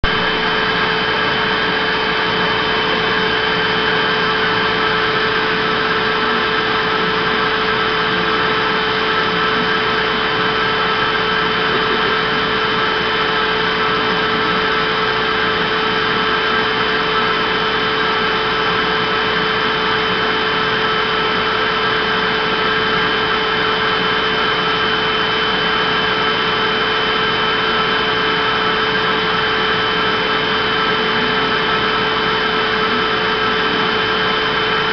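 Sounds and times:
vacuum cleaner running: 0.0 - 34.9.

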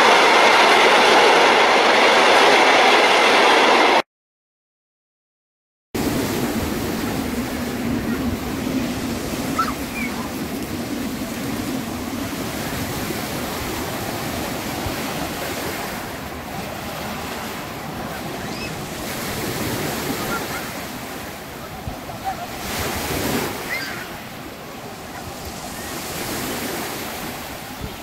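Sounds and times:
small waves washing onto beach: 6.0 - 28.0
wind buffeting microphone: 6.0 - 28.0.

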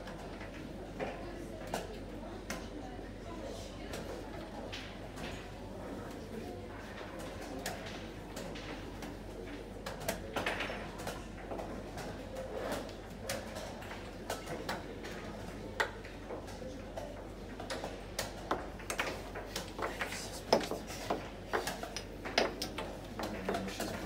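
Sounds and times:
chess pieces clicking on board: 18.2 - 22.9.

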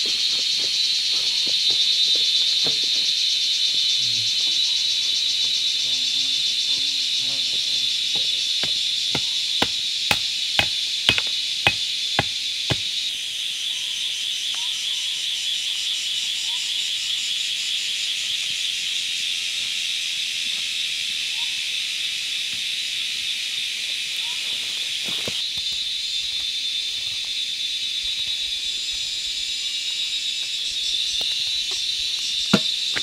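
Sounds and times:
high insect drone: 0.0 - 33.0
hatchet striking wooden pole: 8.2 - 12.9, 32.5 - 33.0.

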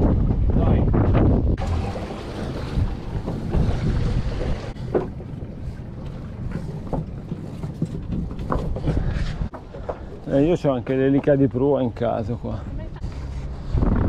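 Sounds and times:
wind buffeting microphone: 0.0 - 9.5, 12.8 - 14.0
boat motor rumbling: 0.3 - 14.0.

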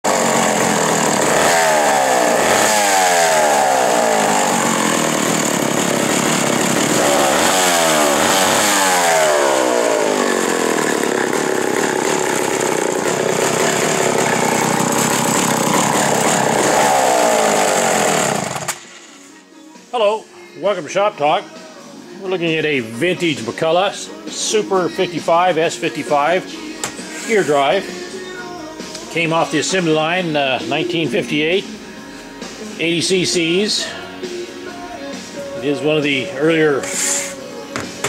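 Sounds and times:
chainsaw engine revving: 0.0 - 19.0, 35.7 - 37.4.

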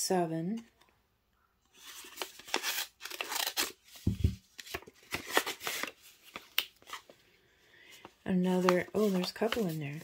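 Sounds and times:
paper envelope rustling: 1.7 - 7.2, 7.9 - 10.0.

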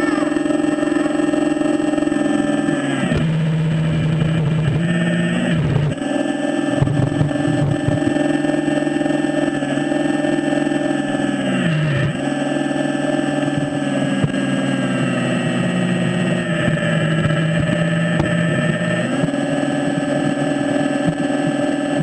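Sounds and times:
hydraulic pump whining: 0.0 - 8.1.

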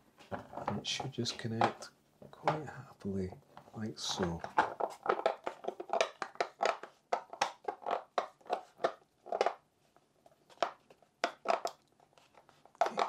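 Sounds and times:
plastic case clicks and knocks: 0.3 - 2.7, 4.1 - 9.5.

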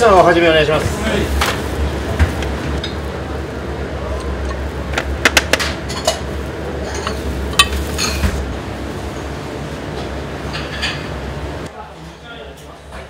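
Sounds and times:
low kitchen hum: 0.0 - 13.0
dishes and utensils clinking: 4.1 - 8.4, 10.4 - 11.2.

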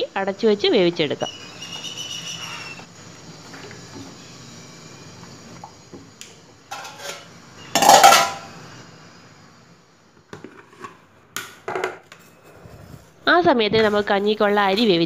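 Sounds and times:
water boiling: 2.6 - 11.0
metal plate clattering on pot: 6.7 - 8.5.

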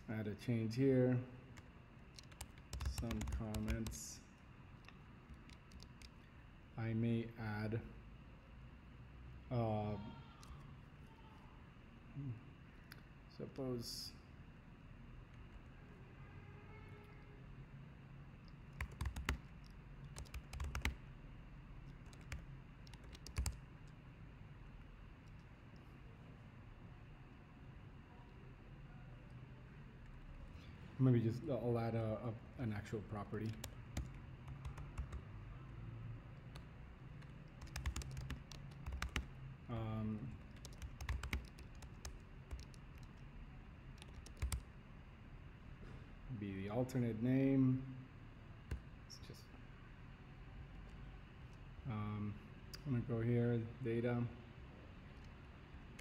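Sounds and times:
typing on computer keyboard: 2.1 - 4.0, 5.3 - 6.2, 18.7 - 21.0, 21.8 - 23.6, 33.4 - 35.2, 37.2 - 39.3, 40.4 - 43.2, 44.0 - 44.7.

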